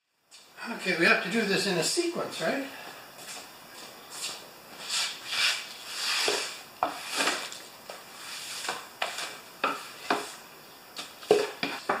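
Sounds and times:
broom sweeping concrete floor: 0:03.2 - 0:12.0.

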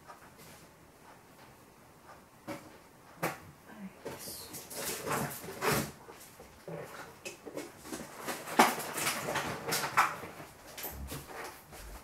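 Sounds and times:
kitchen things knocking and rustling: 0:07.1 - 0:12.0.

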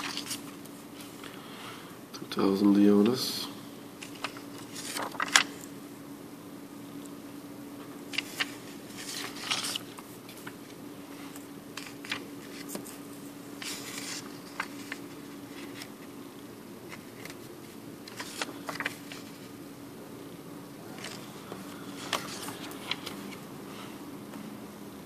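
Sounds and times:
banknotes rustling and crinkling: 0:00.0 - 0:01.2, 0:04.0 - 0:05.7, 0:08.1 - 0:16.2, 0:16.8 - 0:19.6, 0:20.8 - 0:24.0
steady low hum: 0:00.0 - 0:25.0.

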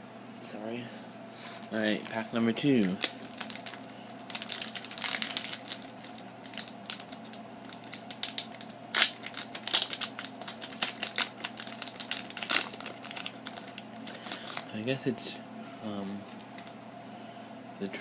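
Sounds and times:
foil wrapper crinkling and tearing: 0:01.6 - 0:14.8.

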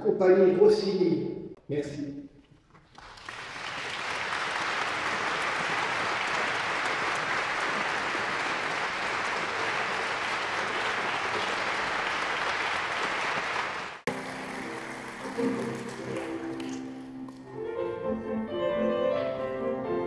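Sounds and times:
audience applauding: 0:02.8 - 0:17.0.

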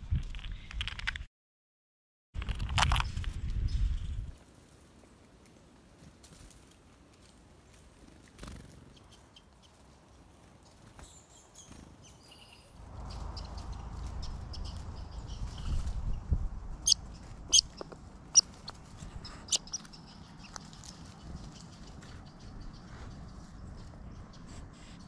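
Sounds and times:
small songbirds chirping: 0:07.2 - 0:25.0
low rumble: 0:12.8 - 0:19.3.

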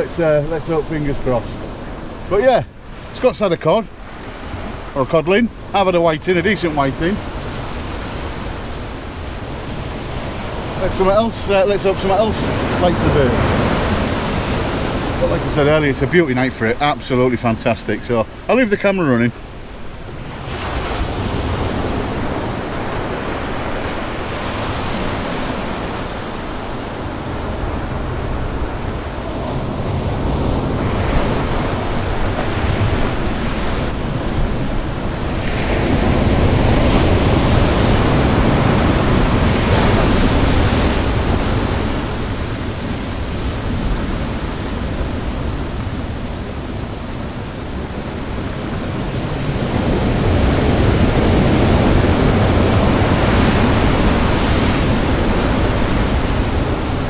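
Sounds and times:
sea surf breaking: 0:00.0 - 0:57.0
wind buffeting microphone: 0:19.3 - 0:57.0.

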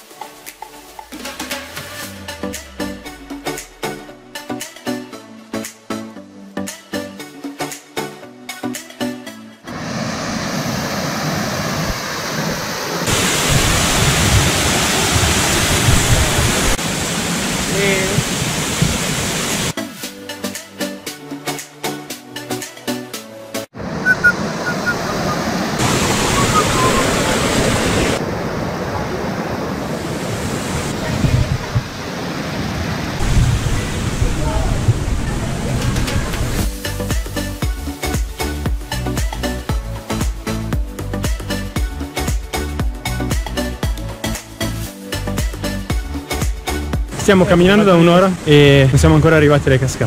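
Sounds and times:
stream rushing over rocks: 0:09.7 - 0:19.8, 0:23.8 - 0:36.7
wind buffeting microphone: 0:30.2 - 0:32.1.

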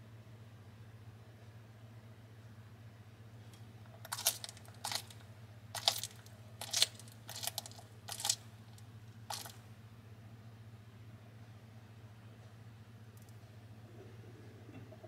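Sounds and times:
faint low hum: 0:00.0 - 0:15.0
lizard crunching insect shell: 0:03.9 - 0:09.6.

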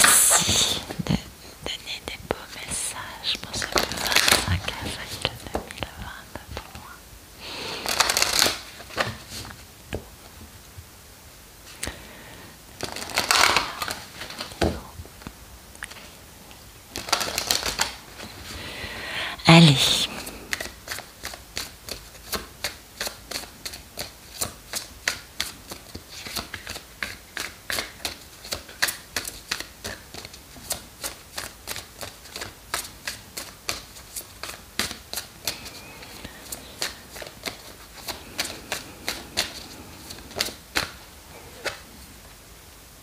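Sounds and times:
cards being shuffled: 0:03.6 - 0:04.9, 0:07.8 - 0:09.6, 0:12.8 - 0:14.8, 0:16.9 - 0:18.4, 0:20.2 - 0:42.0.

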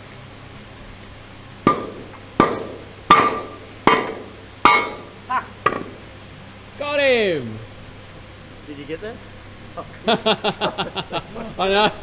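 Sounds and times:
hammer blows on steel ringing: 0:01.7 - 0:06.0.

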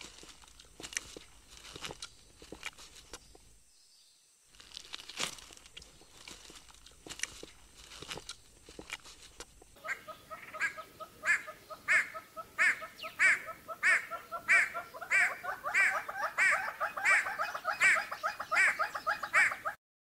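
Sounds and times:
hornbill calling: 0:09.8 - 0:19.8.

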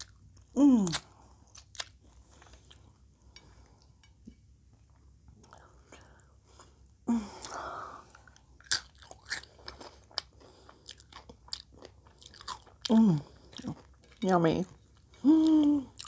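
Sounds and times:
person chewing crunchy food: 0:00.0 - 0:04.1, 0:07.4 - 0:16.0
person humming: 0:15.2 - 0:16.0.

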